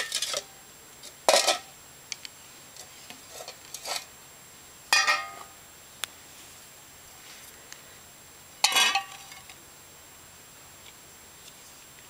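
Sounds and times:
metal plates clanking: 0:04.9 - 0:05.4, 0:08.6 - 0:09.4.

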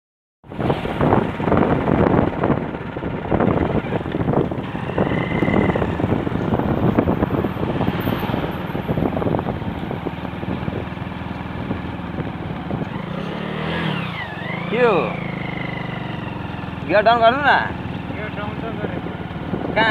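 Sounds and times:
wind buffeting microphone: 0:00.5 - 0:14.2, 0:18.5 - 0:19.9
motorcycle engine running: 0:00.5 - 0:19.9.

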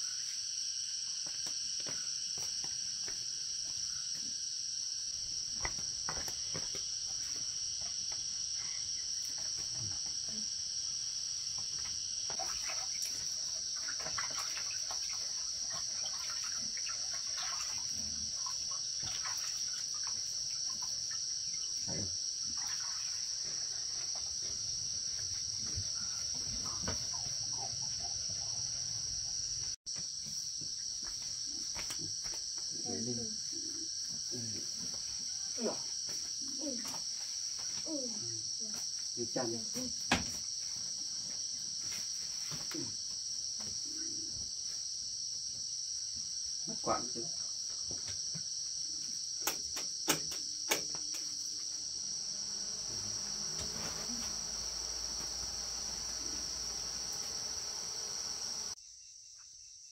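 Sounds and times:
high-pitched insect chorus: 0:00.0 - 0:59.9.

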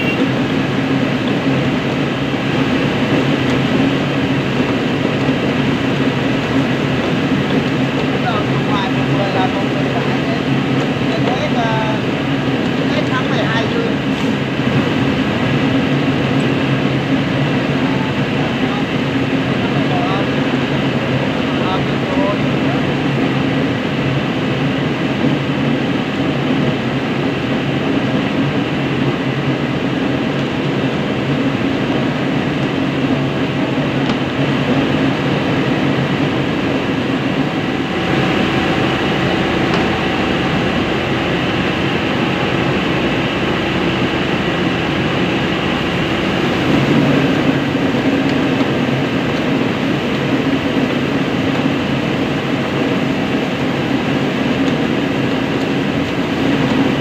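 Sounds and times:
rice milling machine droning: 0:00.0 - 0:57.0.

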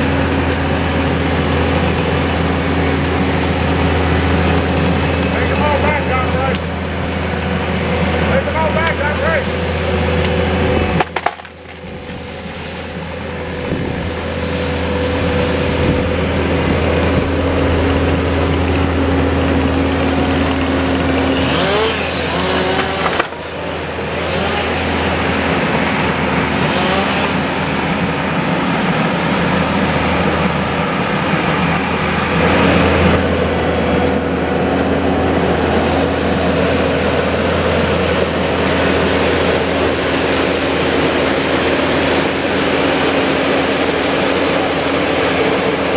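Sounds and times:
diesel engine running under load: 0:00.0 - 0:45.9.

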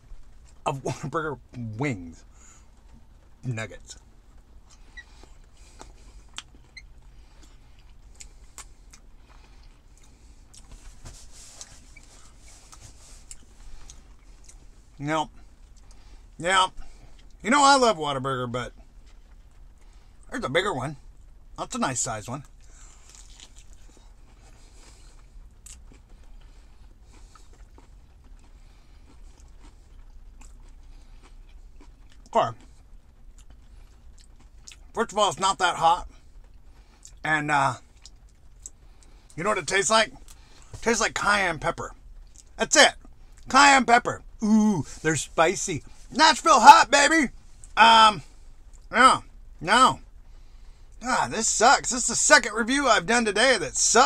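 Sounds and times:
low steady hum in car: 0:00.0 - 0:54.0
man chewing wet clicks: 0:04.0 - 0:10.7, 0:22.5 - 0:34.9.

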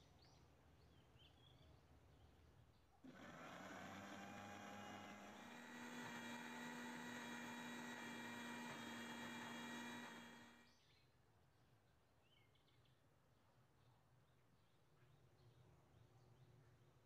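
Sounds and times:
blender motor running: 0:03.1 - 0:10.7.

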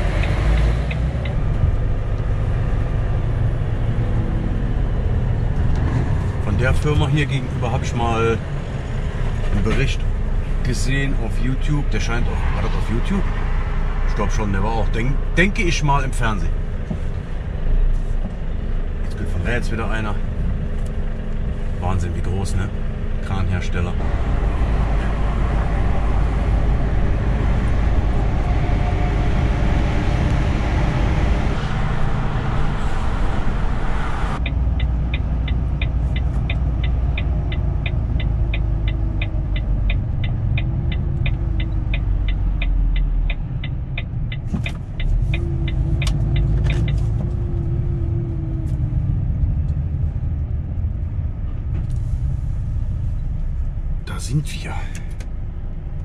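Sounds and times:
turn indicator ticking: 0:00.0 - 0:02.3, 0:34.4 - 0:48.6
road noise: 0:00.0 - 0:56.0
truck engine: 0:00.0 - 0:56.0.

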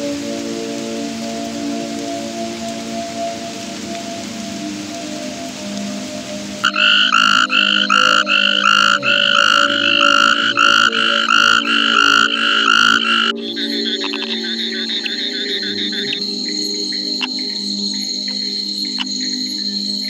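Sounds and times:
steady hiss: 0:00.0 - 0:20.0
frog croaking: 0:06.6 - 0:19.3.

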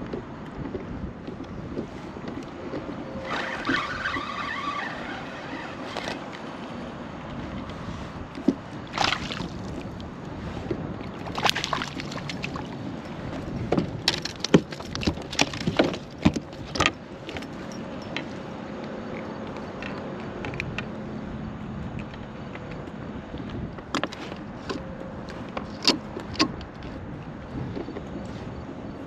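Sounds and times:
fishing gear clicks and knocks: 0:07.2 - 0:21.0, 0:21.6 - 0:28.3
water lapping against kayak hull: 0:07.8 - 0:17.7.

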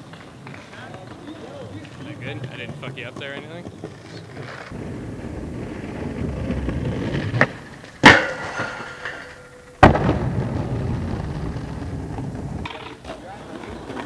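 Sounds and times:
skateboard tail popping: 0:00.0 - 0:14.0
skateboard wheels rolling on stone: 0:00.0 - 0:14.0
skateboard grinding metal handrail: 0:05.7 - 0:09.9
skateboard hard landing: 0:05.8 - 0:14.0.

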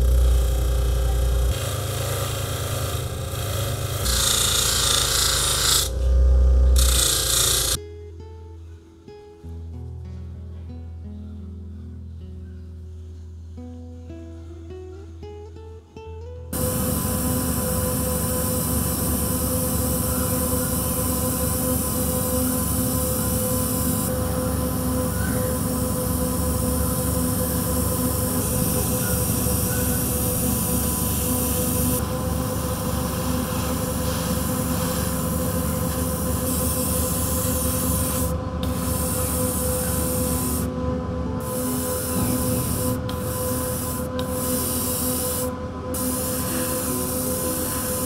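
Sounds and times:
steady hum: 0:00.0 - 0:07.8, 0:16.5 - 0:48.0
airbrush spraying hiss: 0:16.6 - 0:40.7, 0:41.4 - 0:48.0.

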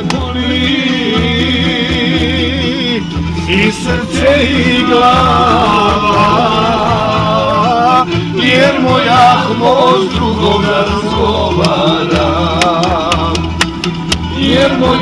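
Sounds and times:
man singing with vibrato: 0:00.0 - 0:13.4, 0:14.3 - 0:15.0.

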